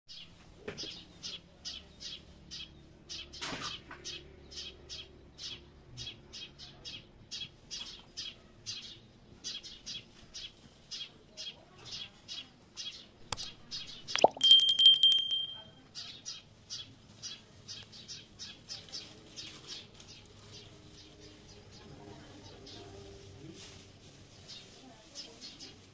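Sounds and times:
small bird chirping: 0:13.4 - 0:15.6
bell-like chime: 0:14.2 - 0:15.7.

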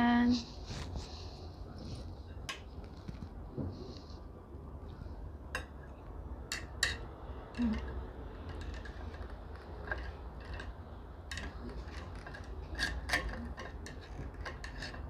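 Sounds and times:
low steady hum: 0:00.0 - 0:15.0
utensils clinking on bowl: 0:06.5 - 0:15.0.

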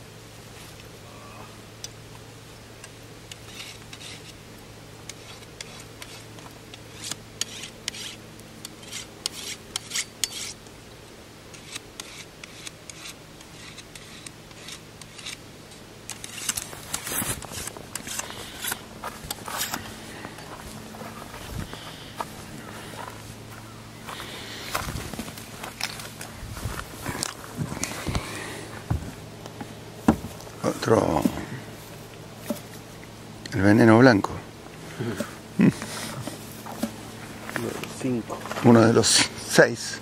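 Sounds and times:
steady low hum: 0:00.0 - 0:40.0
things scraping and clicking: 0:11.5 - 0:23.2.

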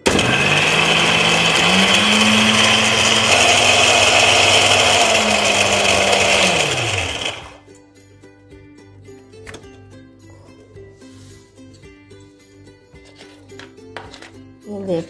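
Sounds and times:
mixer grinder motor running: 0:00.0 - 0:07.6.

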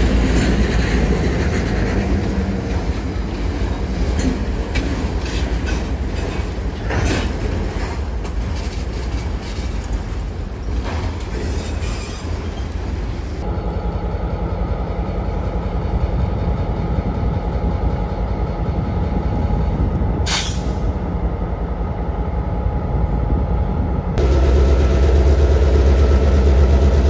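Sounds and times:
freight cars rolling on rails: 0:00.0 - 0:21.9
high wheel squeal: 0:11.3 - 0:12.8
diesel locomotive idling: 0:13.0 - 0:27.0.

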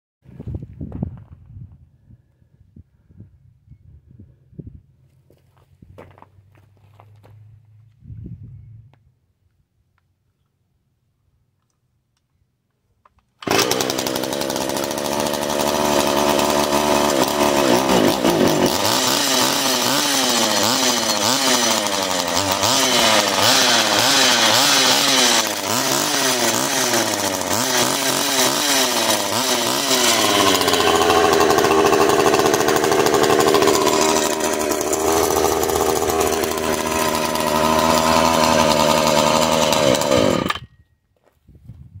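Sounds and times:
chainsaw engine revving: 0:13.4 - 0:40.6.

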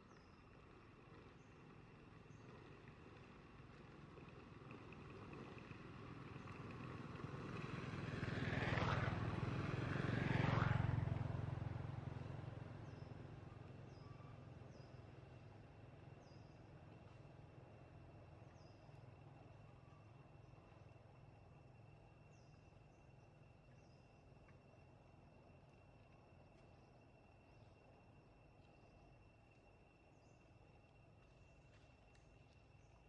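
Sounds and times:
vehicle engine passing by: 0:06.8 - 0:13.1.

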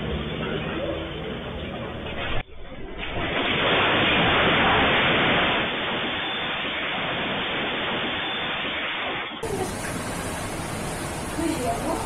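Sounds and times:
loud rushing noise: 0:03.0 - 0:11.3.

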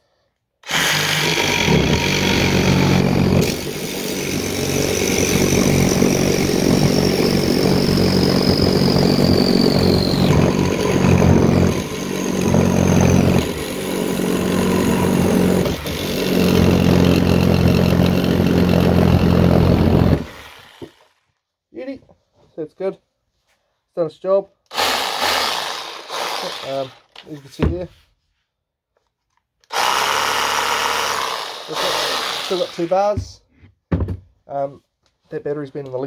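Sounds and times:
reciprocating saw cutting metal: 0:00.6 - 0:21.2, 0:24.7 - 0:27.1, 0:29.7 - 0:33.2.

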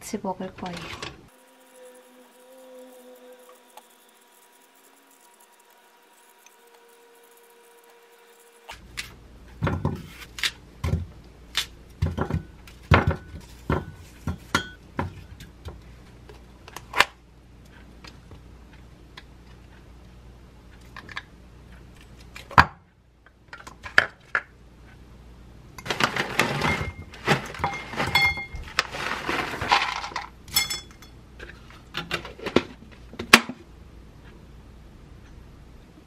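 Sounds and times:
rustling: 0:25.9 - 0:30.3
pieces clinking into glass cup: 0:26.5 - 0:28.7, 0:29.7 - 0:31.2.

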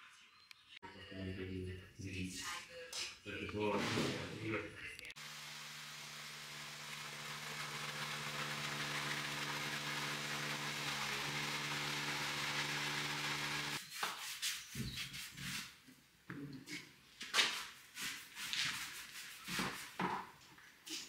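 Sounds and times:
motor-driven machine humming: 0:05.2 - 0:13.8.

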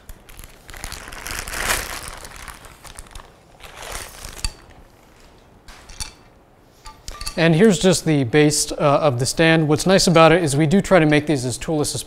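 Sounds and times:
plastic bag crinkling: 0:00.0 - 0:05.5.

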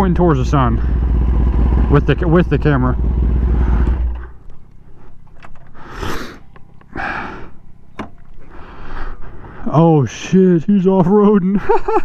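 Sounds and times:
motorcycle engine idling: 0:00.0 - 0:09.3.

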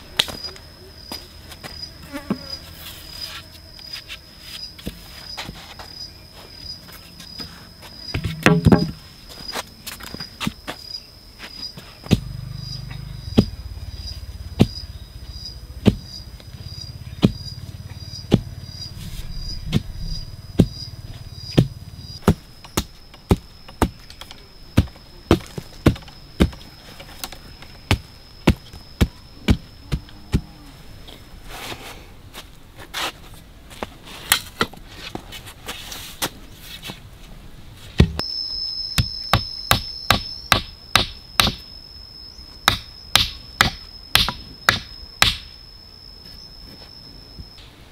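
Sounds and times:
high insect buzz: 0:00.0 - 0:32.2, 0:37.8 - 0:47.8
hatchet knocking on wood: 0:08.3 - 0:09.0.

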